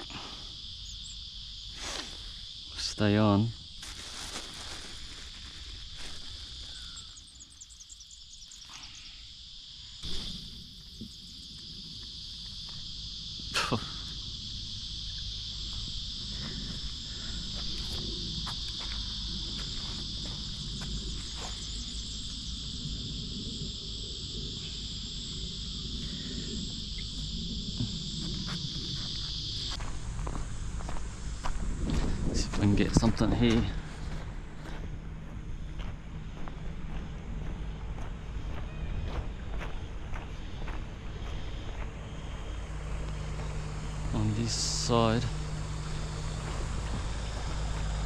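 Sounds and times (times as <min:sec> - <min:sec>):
insects buzzing: 0:00.0 - 0:48.0.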